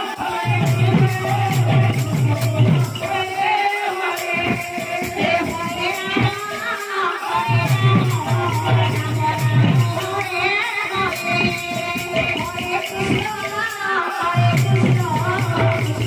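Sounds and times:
barrel drum beat: 0:00.0 - 0:16.0
jingling hand cymbals: 0:00.0 - 0:16.0
voices singing devotional music: 0:00.0 - 0:16.0.

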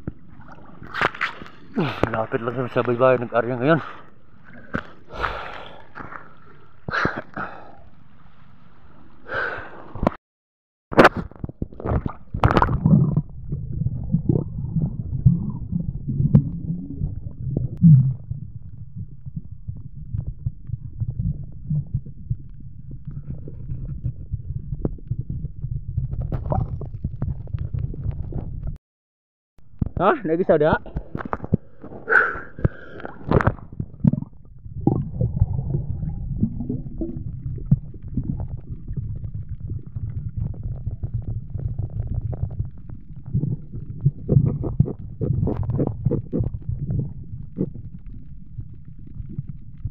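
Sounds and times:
underwater crackles and gurgles: 0:00.0 - 0:10.2, 0:11.0 - 0:28.8, 0:30.7 - 0:49.9
muffled underwater rumble: 0:11.2 - 0:28.8, 0:29.6 - 0:49.9.

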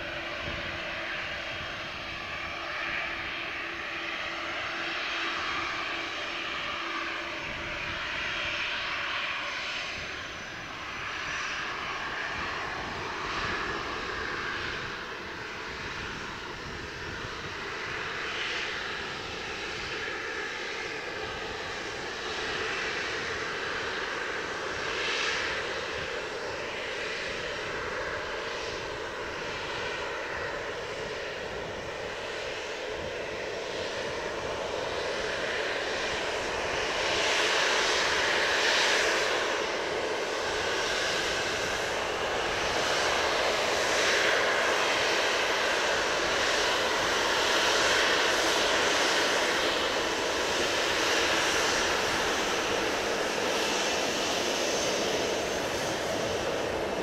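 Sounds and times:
wind rumbling on microphone: 0:00.0 - 0:03.4, 0:09.5 - 0:19.9
jet engine whine: 0:00.0 - 0:57.0.

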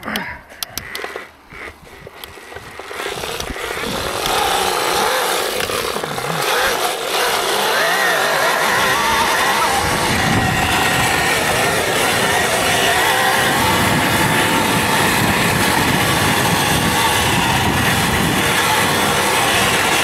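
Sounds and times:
sharp clicks and knocks: 0:00.0 - 0:01.3
electric bike whine: 0:00.8 - 0:20.0.

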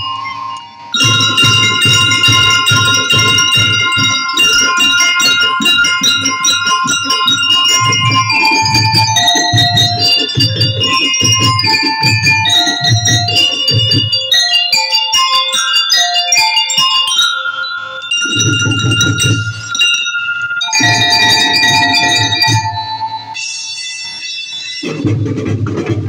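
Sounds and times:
glockenspiel melody: 0:00.0 - 0:25.1
bass drum beat: 0:01.0 - 0:14.2.

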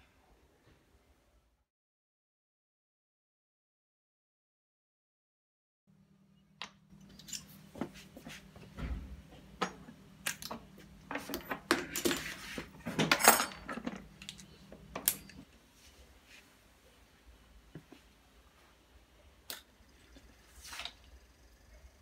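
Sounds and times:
faint low hum: 0:05.9 - 0:22.0.

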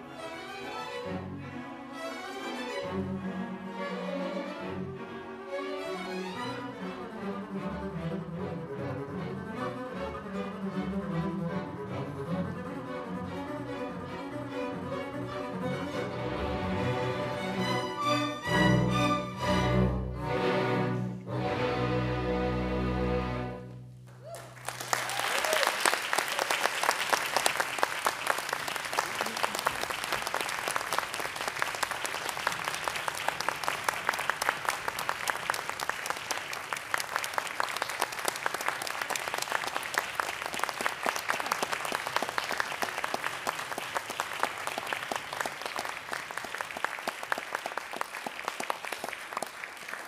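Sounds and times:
audience applauding: 0:24.1 - 0:50.0.

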